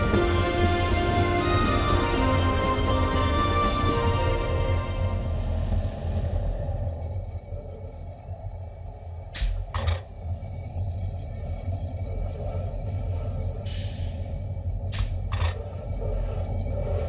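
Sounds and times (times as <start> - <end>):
roller coaster rumbling on track: 0.0 - 8.7.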